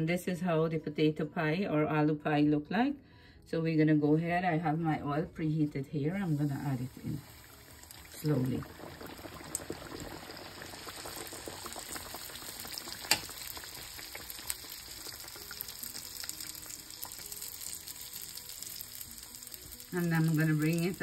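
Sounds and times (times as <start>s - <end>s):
oil sizzling and crackling: 6.2s - 21.0s.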